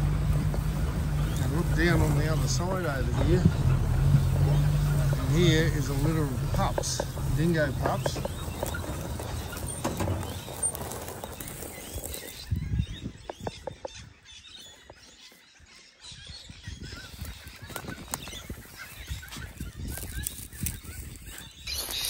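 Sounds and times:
rustling through dry grass: 0.0 - 13.8, 16.8 - 22.0
low rumbling: 0.0 - 14.2
birds calling: 0.0 - 22.0.

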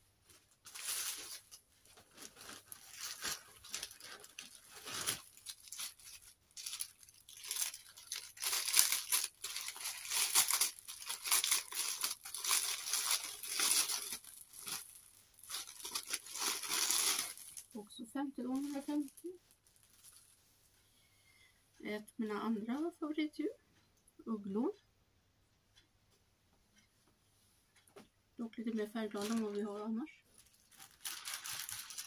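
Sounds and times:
plastic bag crinkling and tearing: 0.6 - 17.8, 18.5 - 20.3, 29.2 - 32.0.

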